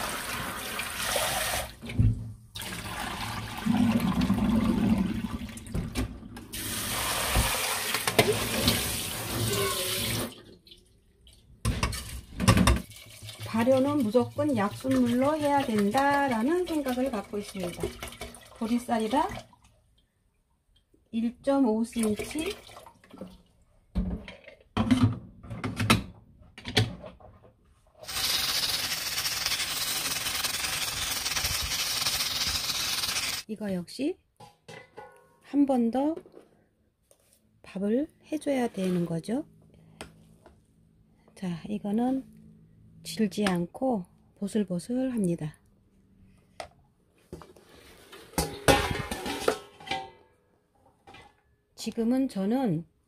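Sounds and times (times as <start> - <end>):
tap water running and splashing: 0.0 - 19.8, 28.0 - 33.5
barley boiling with hiss: 28.0 - 33.5
metal pot and lid clunking: 34.4 - 35.3, 48.3 - 50.3.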